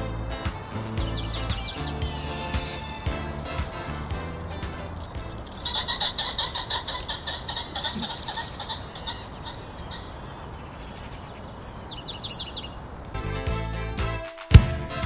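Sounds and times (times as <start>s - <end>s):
pheasant cackling calls: 0.6s - 11.5s.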